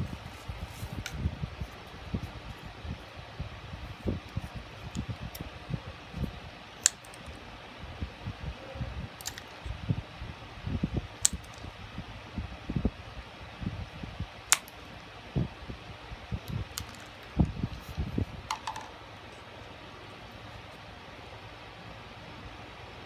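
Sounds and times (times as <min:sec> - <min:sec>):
steady low hiss: 0:00.0 - 0:23.0.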